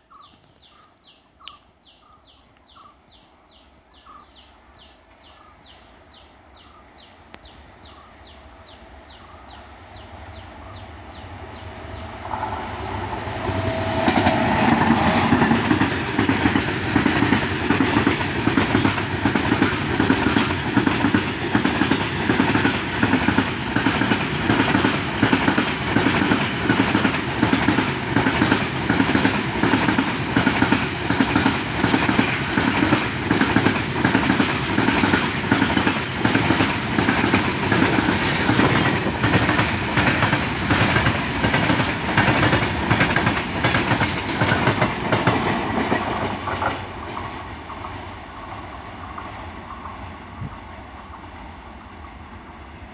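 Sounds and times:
train wheels clattering over rail joints: 0:14.0 - 0:48.0.

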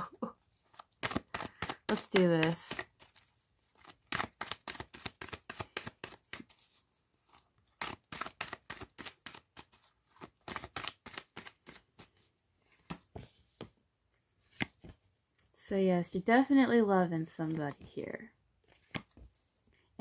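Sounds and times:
cards being shuffled: 0:00.6 - 0:13.8, 0:14.4 - 0:15.0, 0:18.6 - 0:19.5.

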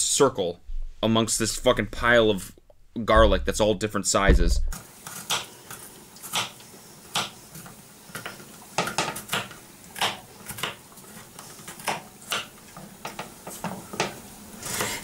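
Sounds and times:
knife chopping on wooden board: 0:08.8 - 0:10.8.

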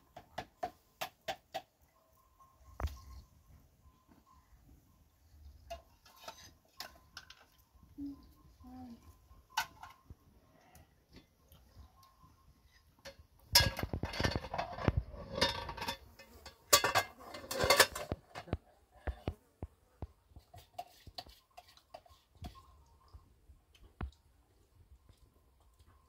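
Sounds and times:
hard objects clattering and clinking: 0:13.0 - 0:19.4.

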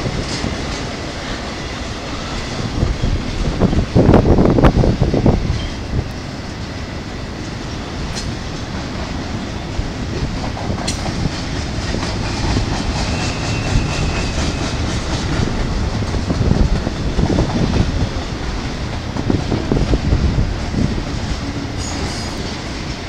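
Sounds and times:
freight train rolling past: 0:00.0 - 0:23.0
faint wheel squeal: 0:13.0 - 0:14.9.

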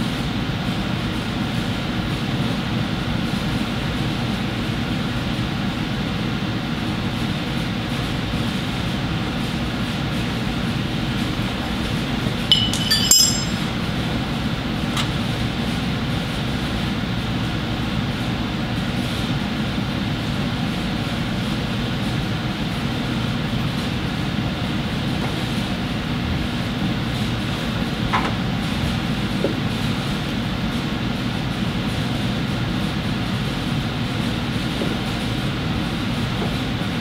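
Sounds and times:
ringing metal clinks: 0:12.5 - 0:13.9.

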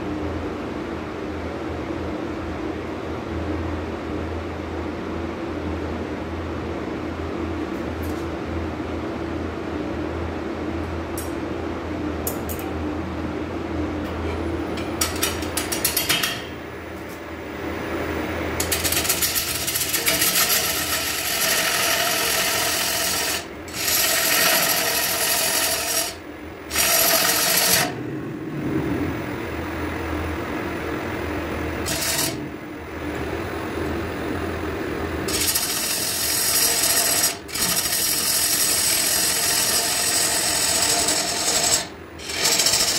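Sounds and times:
lathe motor humming: 0:17.5 - 0:42.9
gouge scraping wood: 0:19.0 - 0:27.9.

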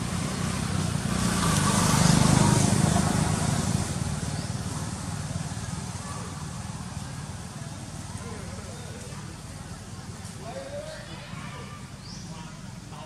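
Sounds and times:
vehicle passing by: 0:00.0 - 0:10.1.

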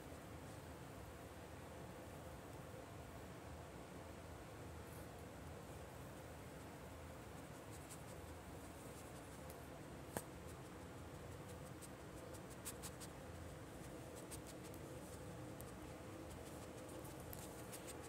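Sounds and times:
steady low hiss: 0:00.0 - 0:18.0
dog scratching in blanket: 0:16.3 - 0:18.0.

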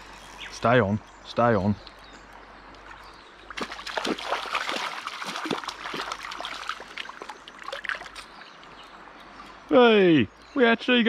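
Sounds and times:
river flowing: 0:02.1 - 0:10.0
fish splashing in water: 0:03.4 - 0:08.4.

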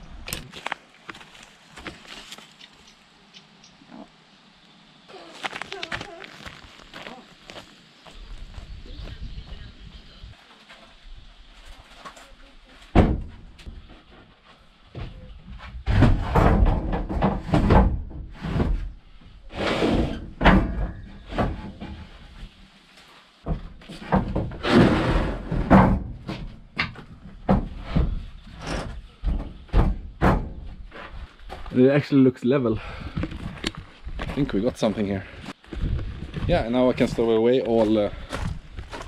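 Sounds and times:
wooden knocks and thuds: 0:12.9 - 0:14.3, 0:14.9 - 0:18.9, 0:20.2 - 0:22.3, 0:23.4 - 0:31.1.

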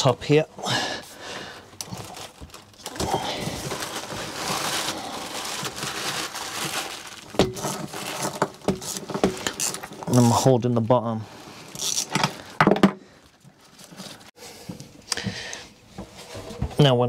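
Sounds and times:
plastic bag crinkling: 0:01.7 - 0:10.5.

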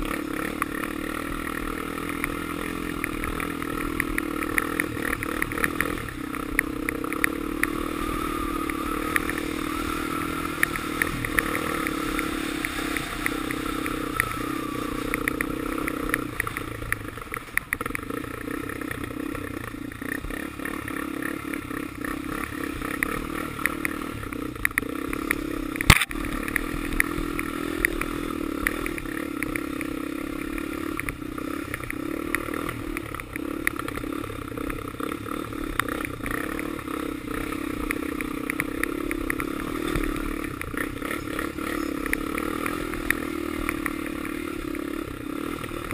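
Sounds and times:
atv engine running: 0:00.0 - 0:45.9.

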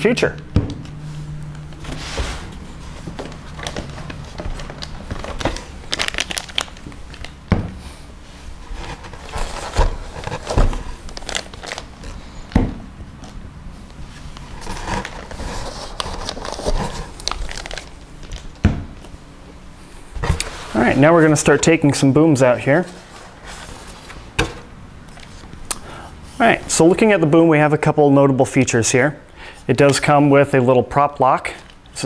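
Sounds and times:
plastic packaging crinkling: 0:02.4 - 0:07.4, 0:08.7 - 0:12.4, 0:14.4 - 0:18.6.

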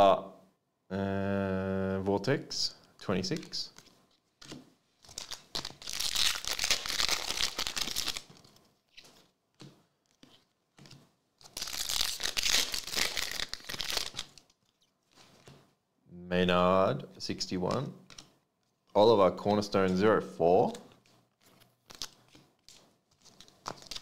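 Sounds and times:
foil wrappers tearing and crinkling: 0:05.0 - 0:08.5, 0:11.4 - 0:15.2, 0:21.8 - 0:24.0.

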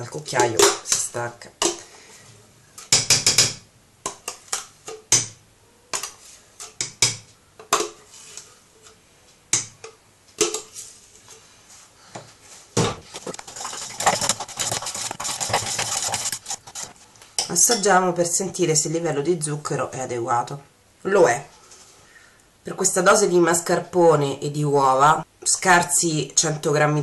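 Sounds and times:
spoon scraping metal pot: 0:13.1 - 0:17.0.

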